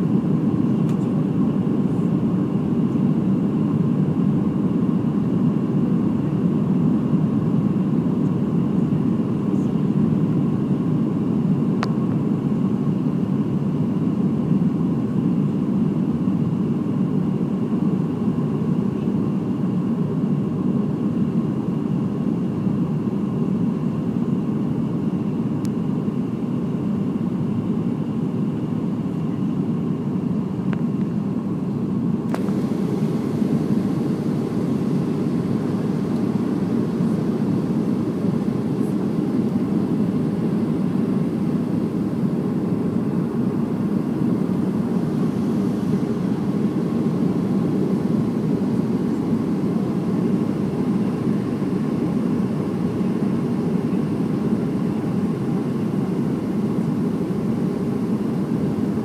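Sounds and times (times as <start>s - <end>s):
jet engines and airflow drone: 0.0s - 59.0s
faint high whine: 23.8s - 59.0s.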